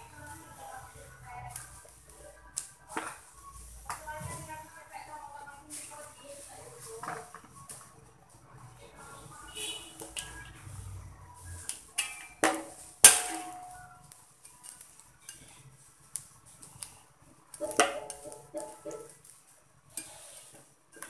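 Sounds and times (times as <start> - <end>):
metal ladle scraping a wok: 9.9 - 10.8, 11.7 - 13.8, 19.9 - 20.6.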